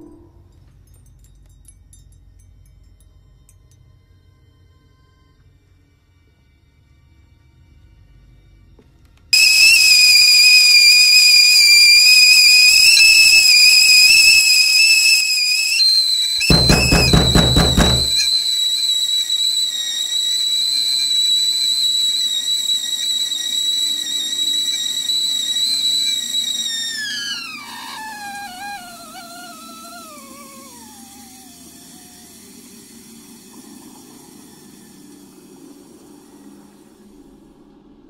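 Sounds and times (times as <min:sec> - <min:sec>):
loud high-pitched whistle: 0:09.4 - 0:33.2.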